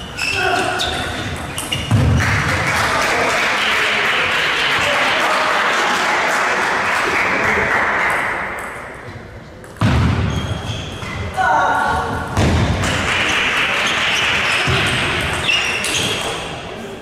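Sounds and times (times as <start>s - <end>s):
spectators clapping: 2.1s - 8.6s, 12.9s - 14.9s.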